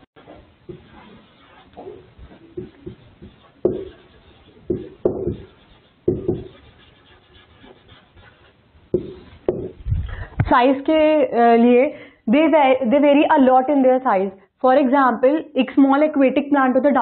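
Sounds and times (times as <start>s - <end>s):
marker squeaking on whiteboard: 0.2s - 9.8s.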